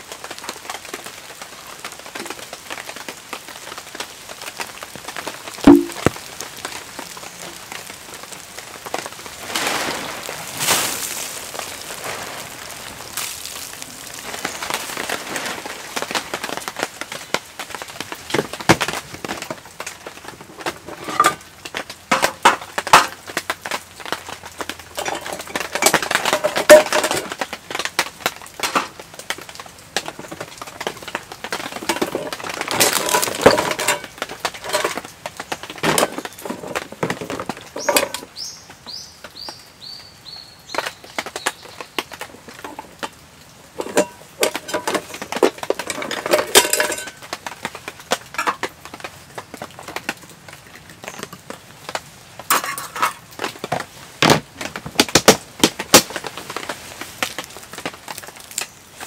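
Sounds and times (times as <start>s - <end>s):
objects knocking and clinking: 5.7s - 6.2s, 20.3s - 21.4s, 22.1s - 23.2s, 25.0s - 27.4s, 28.6s - 29.0s, 31.7s - 35.1s, 35.7s - 38.3s, 43.8s - 47.3s, 48.3s - 48.7s, 52.5s - 53.2s.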